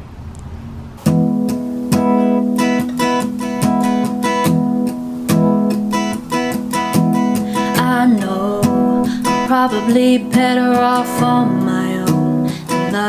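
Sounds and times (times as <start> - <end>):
acoustic guitar strummed: 1.0 - 13.0.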